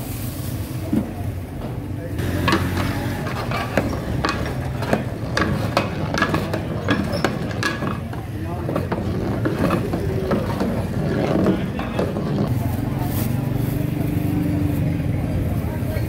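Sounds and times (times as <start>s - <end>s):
murmuring voices: 1.0s - 16.0s
cooking utensils clinking: 2.2s - 12.5s.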